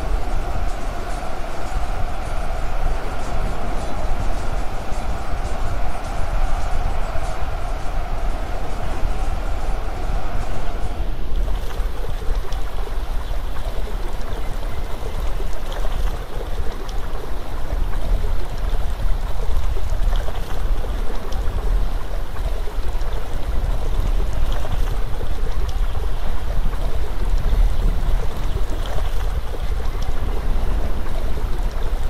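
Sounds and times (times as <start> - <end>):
outdoor rushing noise: 0.0 - 11.9.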